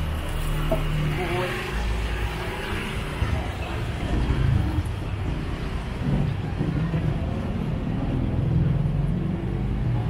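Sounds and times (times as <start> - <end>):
vehicle engines rumbling: 0.0 - 10.0.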